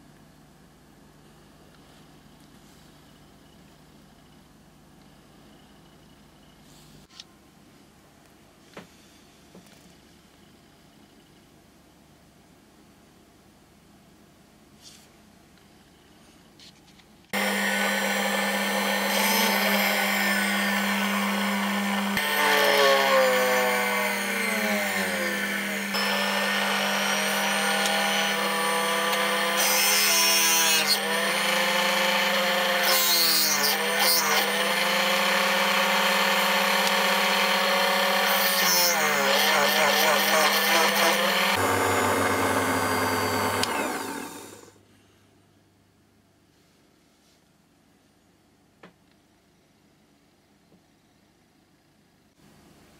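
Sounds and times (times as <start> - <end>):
drill press motor humming: 17.4 - 30.2, 33.6 - 44.8.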